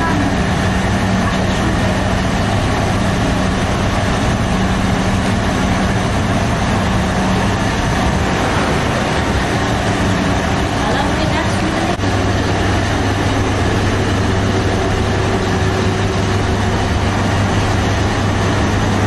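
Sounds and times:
oven mechanical hum: 0.0s - 19.0s
even rushing noise: 5.8s - 13.2s.

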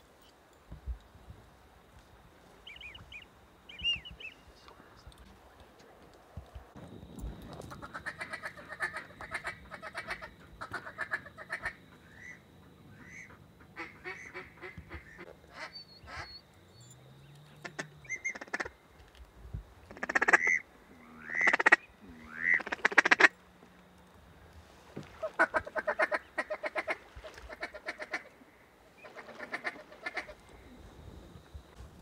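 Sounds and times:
ducks quacking: 7.7s - 16.4s, 19.9s - 23.3s, 25.0s - 30.6s.

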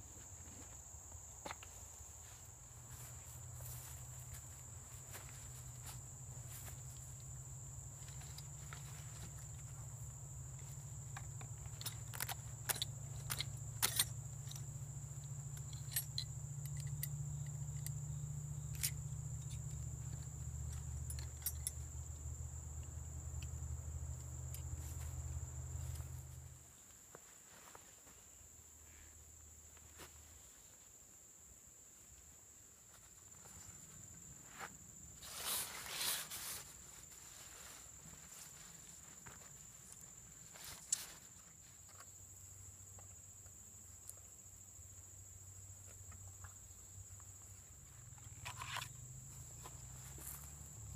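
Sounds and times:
hand tools clinking: 10.6s - 18.0s, 18.7s - 21.9s.

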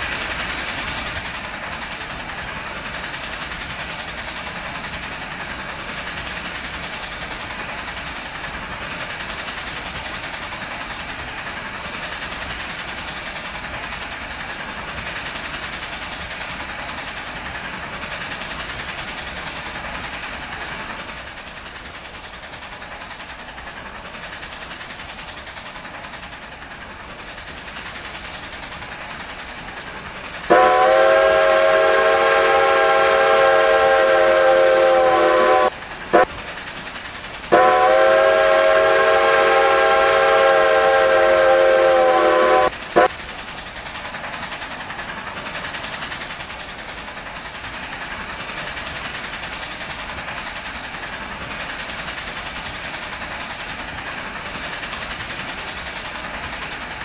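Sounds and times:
train running: 0.0s - 57.0s
steam locomotive whistle: 30.5s - 36.3s, 37.5s - 43.1s.

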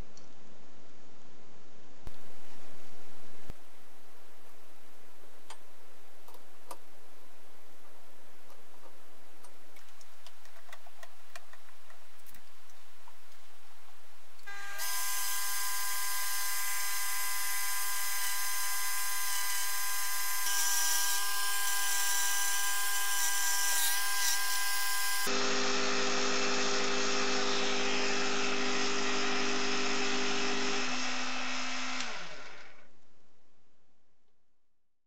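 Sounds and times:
rotary grinder whining: 14.5s - 32.8s.

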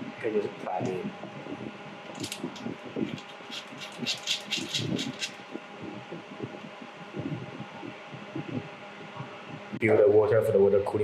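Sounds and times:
faint steady hum: 0.0s - 11.0s
metallic clicks and scratches: 2.1s - 5.5s.

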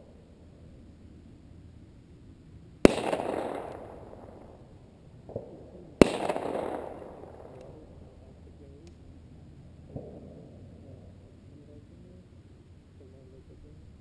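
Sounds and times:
dry-ice bombs bursting with bangs: 2.8s - 4.6s, 5.2s - 7.6s.

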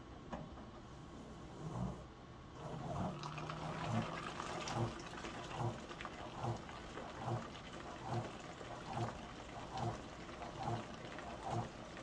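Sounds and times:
low motor hum: 2.5s - 12.0s
water sloshing in washing machine: 2.5s - 12.0s.

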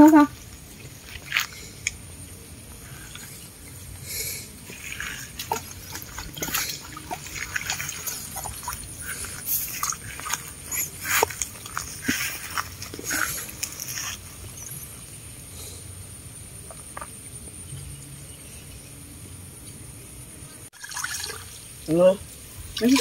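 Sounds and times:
water splashing and dripping: 0.0s - 14.6s, 20.8s - 22.0s, 22.6s - 23.0s.

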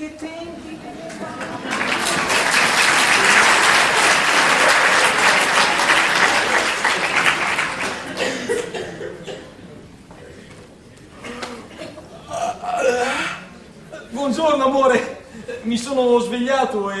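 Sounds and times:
audience applauding: 1.0s - 8.6s.

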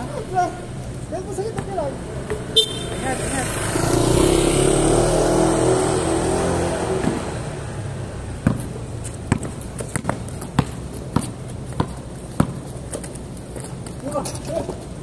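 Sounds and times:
basketball bouncing on concrete: 1.5s - 3.0s, 8.3s - 14.0s.

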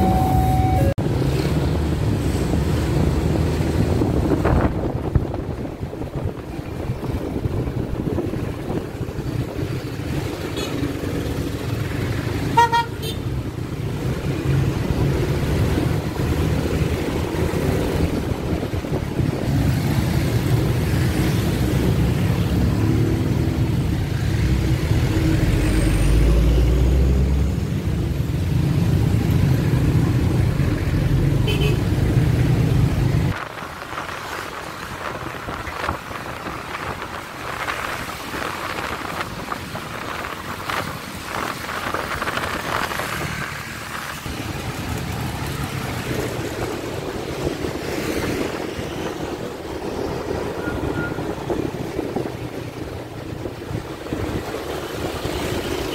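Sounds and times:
vehicle horn beep: 0.0s - 1.0s, 12.6s - 13.3s
traffic engines rumbling: 0.0s - 55.9s.

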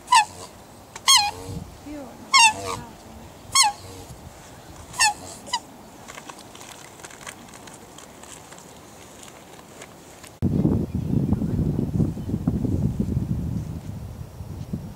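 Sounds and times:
swans calling: 0.0s - 8.1s.

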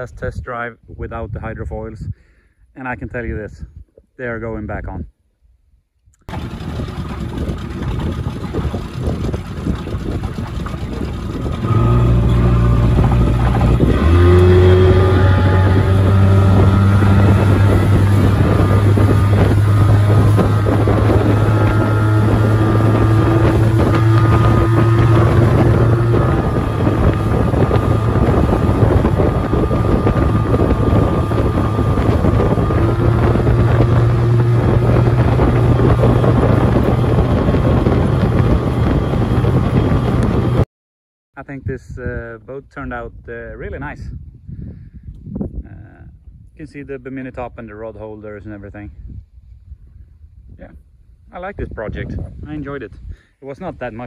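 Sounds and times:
outboard motor running: 6.2s - 40.6s
water rushing: 6.3s - 39.0s
wind rushing: 6.3s - 40.6s, 44.0s - 46.6s, 48.9s - 53.3s.

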